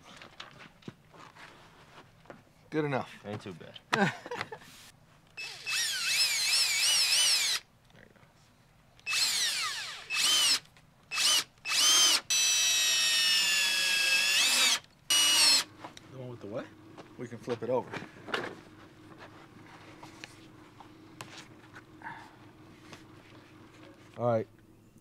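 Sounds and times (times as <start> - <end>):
cordless drill driving screws: 5.4 - 7.6, 9.0 - 15.7.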